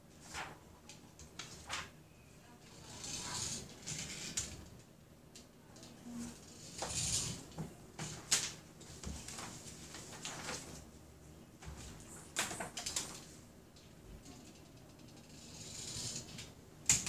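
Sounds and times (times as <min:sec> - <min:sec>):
paper pages rustling: 0:00.2 - 0:00.6, 0:01.4 - 0:02.0, 0:08.0 - 0:10.9.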